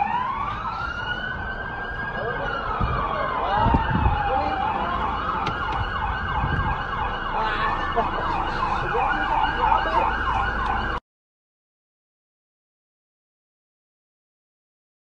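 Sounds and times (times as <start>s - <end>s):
police siren yelping: 0.0s - 11.0s.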